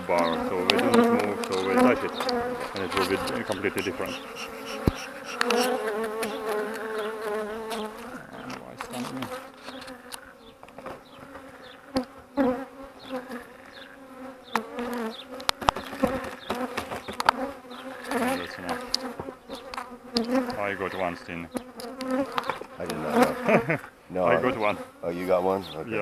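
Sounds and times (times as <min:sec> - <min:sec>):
bees buzzing: 0:00.0 - 0:26.0
sharp clicks: 0:00.1 - 0:05.8.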